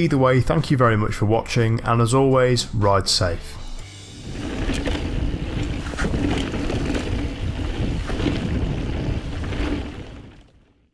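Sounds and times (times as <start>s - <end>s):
wind buffeting microphone: 4.1s - 10.7s
bike tyres rumbling: 4.2s - 10.9s
bike knocks and rattles: 4.4s - 10.5s.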